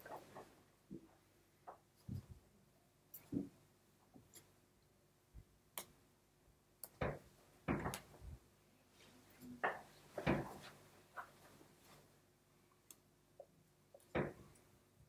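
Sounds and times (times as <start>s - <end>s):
clothing rustle: 8.1s - 12.2s.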